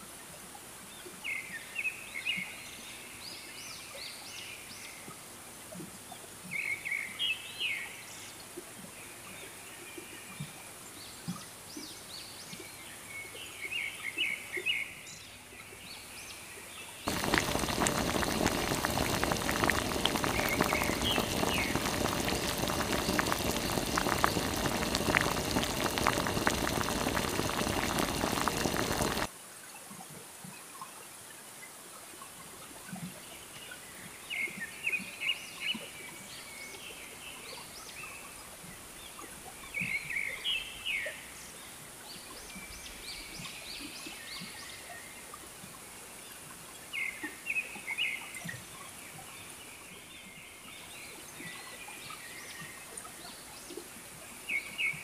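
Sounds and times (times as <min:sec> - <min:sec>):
loud crackling hiss: 0:17.1 - 0:29.3.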